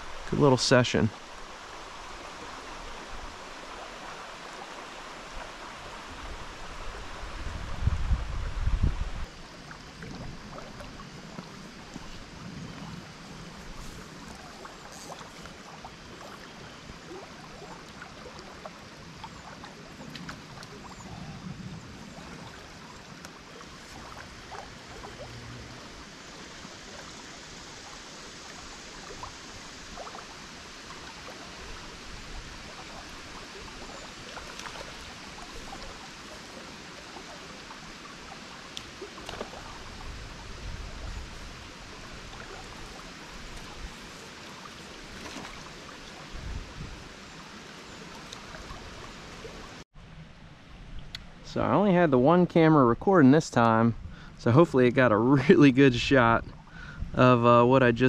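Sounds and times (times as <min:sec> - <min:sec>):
river flowing: 0:00.0 - 0:51.5
small water splashes: 0:09.2 - 0:49.8.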